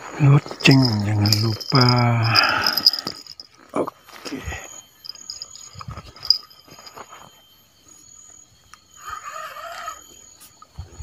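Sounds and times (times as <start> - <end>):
bite-alarm bell tinkling: 0.2 - 10.4
wavering animal call: 9.0 - 10.1.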